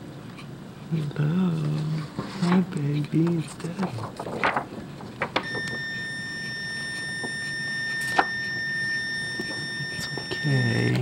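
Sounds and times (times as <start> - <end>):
steady electronic alarm tone: 5.4 - 11.0.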